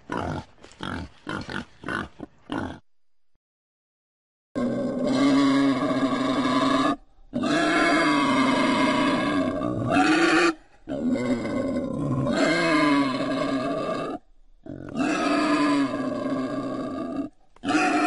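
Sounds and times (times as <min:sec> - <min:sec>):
wild boar calling: 0:04.6 - 0:18.0.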